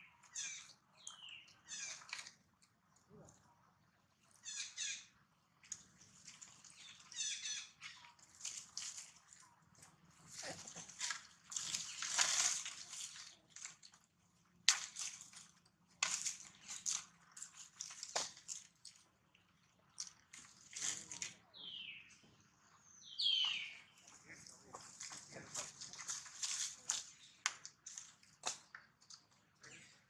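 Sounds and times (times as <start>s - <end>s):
dry leaves crunching and rustling: 24.8s - 28.1s.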